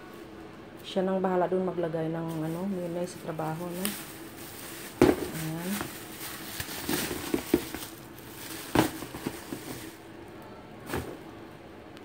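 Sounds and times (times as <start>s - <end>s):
faint hum: 0.0s - 12.0s
plastic bag rustling: 2.2s - 10.1s.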